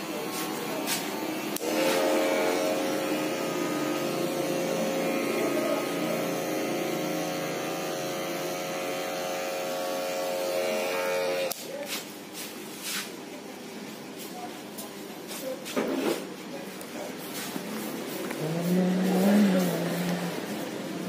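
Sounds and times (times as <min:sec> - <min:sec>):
electric hair clipper running: 0:01.2 - 0:11.6, 0:18.4 - 0:20.7.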